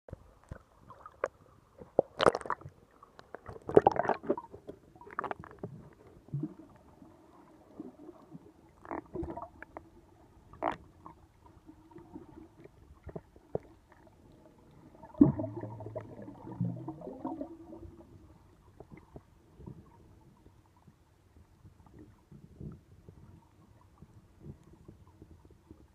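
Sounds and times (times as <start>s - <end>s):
muffled underwater bubbling: 3.4s - 20.2s
water splashing: 12.0s - 18.2s.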